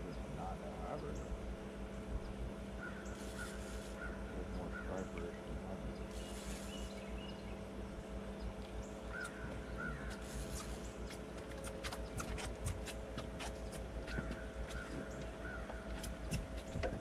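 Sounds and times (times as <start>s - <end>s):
steady low hum: 0.0s - 17.0s
bird harsh call: 2.8s - 7.4s, 8.9s - 11.1s, 13.4s - 16.2s.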